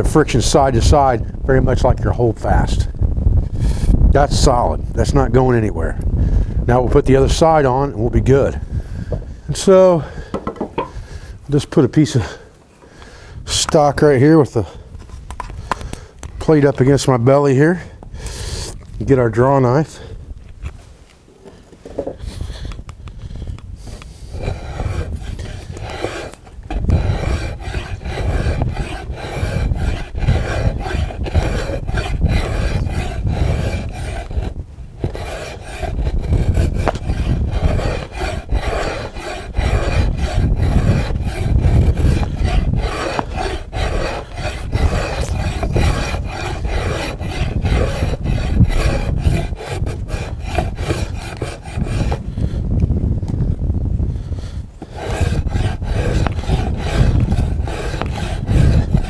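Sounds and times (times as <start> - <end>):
draw knife scraping wood: 23.8 - 52.3, 54.8 - 59.0.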